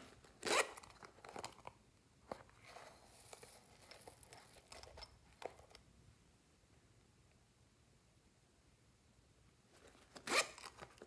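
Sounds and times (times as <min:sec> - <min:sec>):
zipper pulled open: 0:00.0 - 0:01.1, 0:10.1 - 0:11.0.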